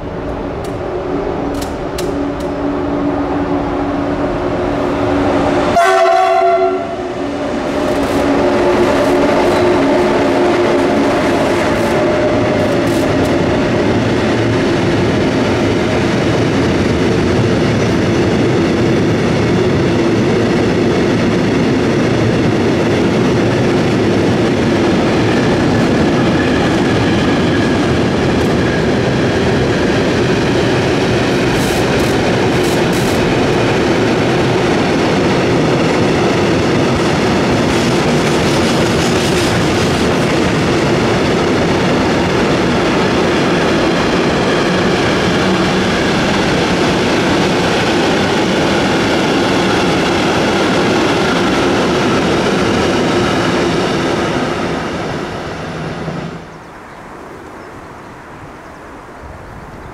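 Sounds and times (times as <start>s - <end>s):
train horn blast: 5.7s - 13.2s
freight train wagons rolling: 7.5s - 18.9s, 21.7s - 48.6s.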